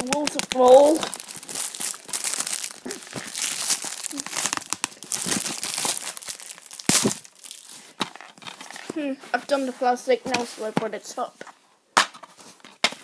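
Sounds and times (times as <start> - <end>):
plastic shrink-wrap crinkling: 0.0 - 9.0.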